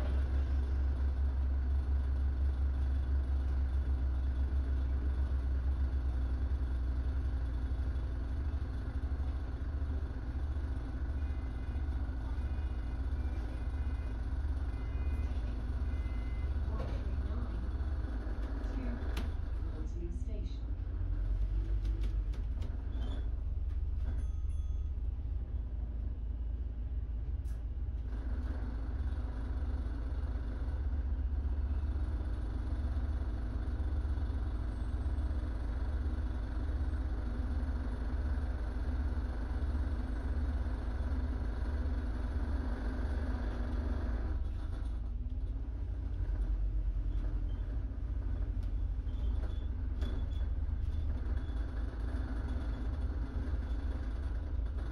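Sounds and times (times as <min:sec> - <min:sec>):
road noise: 0:00.0 - 0:54.8
bus engine rumble: 0:00.0 - 0:54.9.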